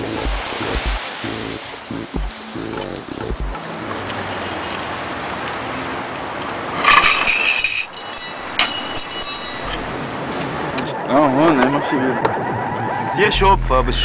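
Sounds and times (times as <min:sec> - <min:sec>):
outdoor background noise: 0:00.0 - 0:14.0
glasses clinking: 0:06.8 - 0:10.0.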